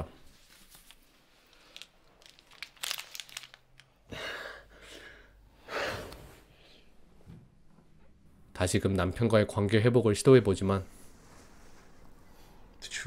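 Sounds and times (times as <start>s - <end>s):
heavy breathing: 4.0s - 7.0s
bedclothes rustling: 10.9s - 12.4s.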